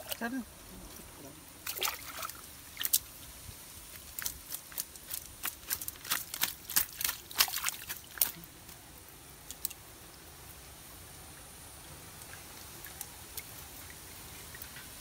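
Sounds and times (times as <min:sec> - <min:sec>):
fish splashing in water: 0:01.6 - 0:08.8.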